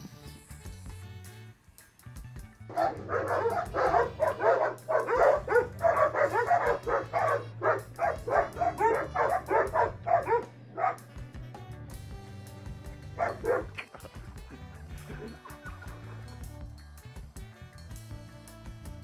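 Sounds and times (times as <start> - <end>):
dogs barking: 2.7 - 11.2, 13.0 - 14.2.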